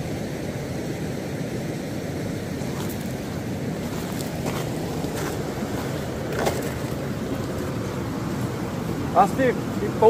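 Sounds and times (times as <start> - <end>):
wind buffeting microphone: 2.4 - 10.0.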